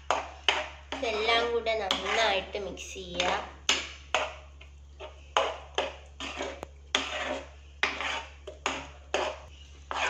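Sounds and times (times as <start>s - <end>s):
spatula scraping in a steel pan: 0.0s - 10.0s.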